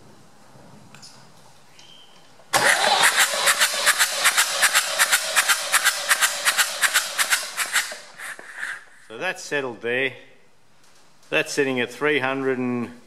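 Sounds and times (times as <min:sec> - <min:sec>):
diesel engine cranking on starter: 0:02.5 - 0:08.1.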